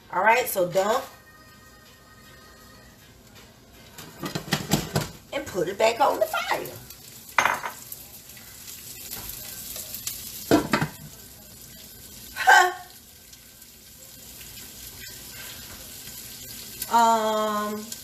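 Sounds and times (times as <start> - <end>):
leaves sizzling in oil: 0.0 - 18.0.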